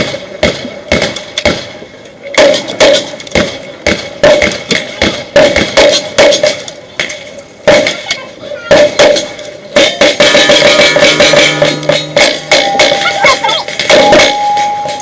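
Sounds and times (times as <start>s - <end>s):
gunshots: 0.0s - 6.7s, 7.6s - 8.1s, 8.7s - 14.7s
steel targets ringing: 9.9s - 15.0s.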